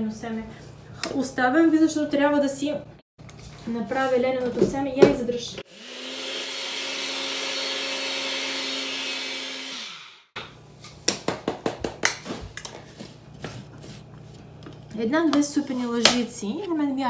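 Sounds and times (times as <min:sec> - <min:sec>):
electric grinder motor whine: 0:05.6 - 0:10.4.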